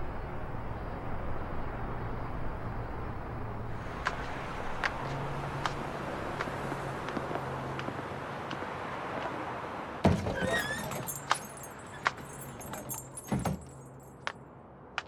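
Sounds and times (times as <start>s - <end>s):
street background noise: 0.0s - 15.0s
door bell jingle: 10.5s - 14.2s.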